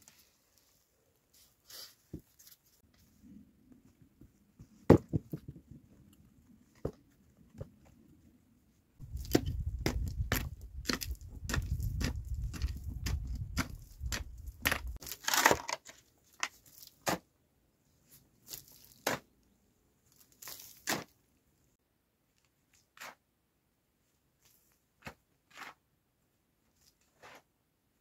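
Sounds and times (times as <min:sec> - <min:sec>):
mattock chopping stony soil: 0:09.0 - 0:15.6, 0:16.9 - 0:17.3, 0:18.5 - 0:19.3, 0:20.5 - 0:21.1.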